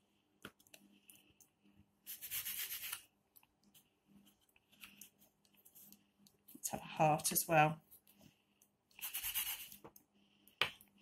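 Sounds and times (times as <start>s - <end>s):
baking paper rubbing and scraping: 2.1s - 3.0s, 9.0s - 9.8s.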